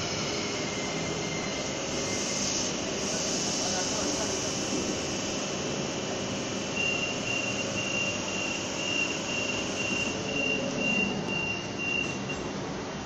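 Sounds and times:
electric train humming: 0.0 - 13.0
high electronic door beeps: 6.7 - 12.5.

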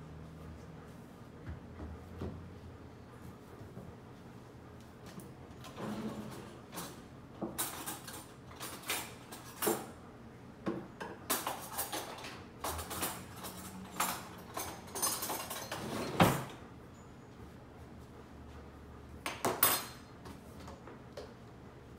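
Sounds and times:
cutlery clattering: 6.8 - 9.9, 11.3 - 16.5, 19.3 - 20.1.

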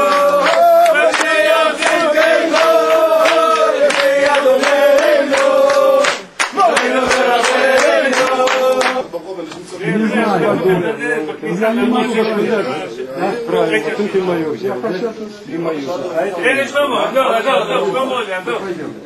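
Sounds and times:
hand clapping: 0.0 - 9.0
men singing together: 0.0 - 9.1.

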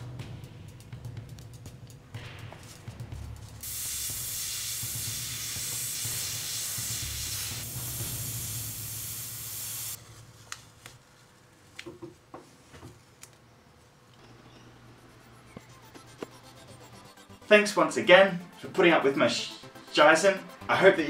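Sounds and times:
airbrush hissing: 3.6 - 10.0.

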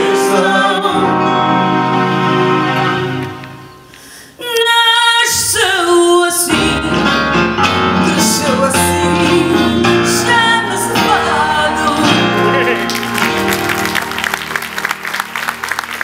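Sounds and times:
person singing live: 0.0 - 3.4, 4.4 - 12.9
guitar and keyboard: 0.0 - 4.0, 6.5 - 16.0.

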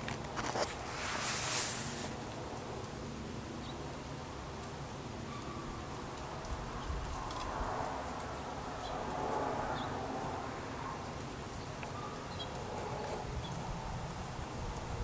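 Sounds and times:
soft rushing hiss: 0.0 - 5.2.

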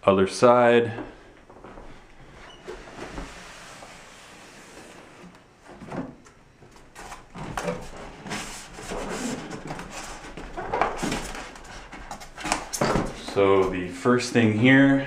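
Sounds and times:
cardboard box rubbing and scraping: 8.2 - 10.4.

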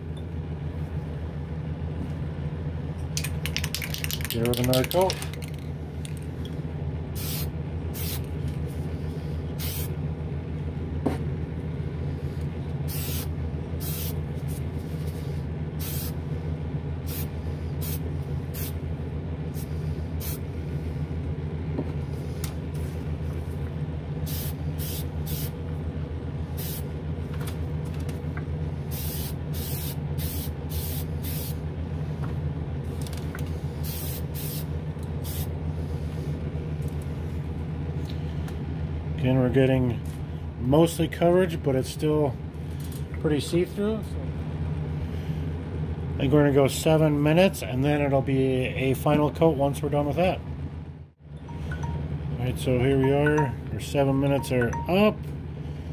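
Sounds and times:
exhaust fan hum: 0.0 - 55.9
aerosol can spraying: 7.2 - 8.3.

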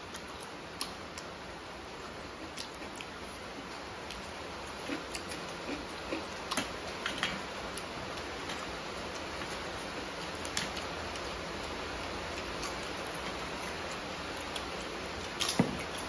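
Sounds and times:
room noise hiss: 0.0 - 16.0.

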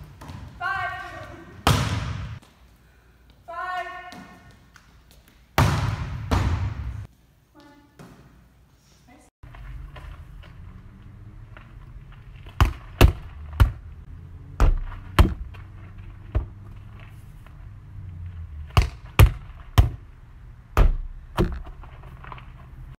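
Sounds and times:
volleyball slaps: 0.0 - 2.6, 4.0 - 7.1, 12.4 - 17.1, 18.6 - 21.8.

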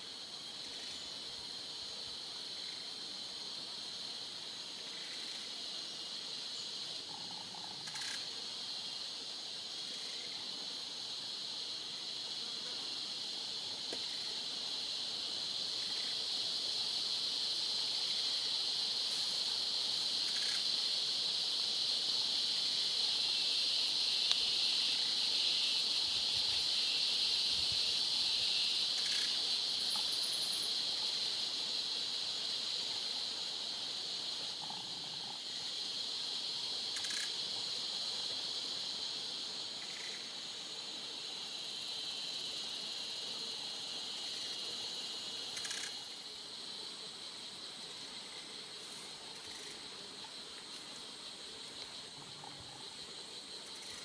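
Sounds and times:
insect chirps and clicks: 0.0 - 54.0
shrill insect drone: 33.6 - 46.4.

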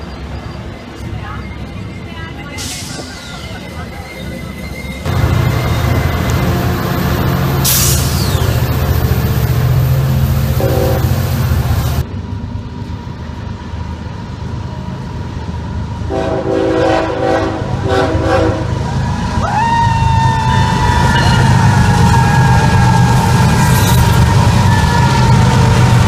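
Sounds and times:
freight train rumbling past: 0.0 - 26.0
locomotive high whine: 0.0 - 26.0
train horn blasts: 10.5 - 11.4, 16.1 - 18.8.

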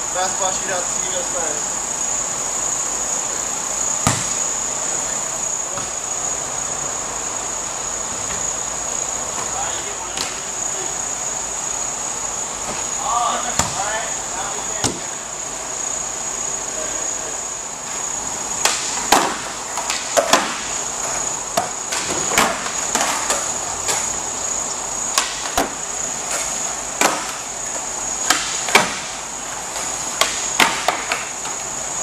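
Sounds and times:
steady high hiss: 0.0 - 32.0
skateboards clacking on concrete: 18.8 - 24.2, 25.0 - 31.8.

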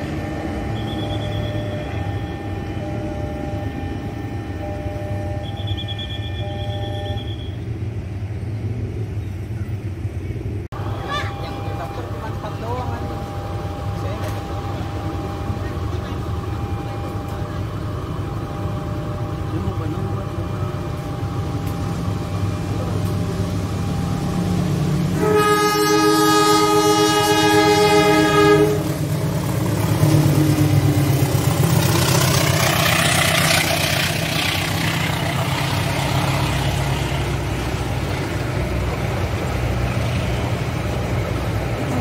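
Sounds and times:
locomotive engine rumble: 0.0 - 42.0
locomotive horn blast: 24.3 - 30.8.

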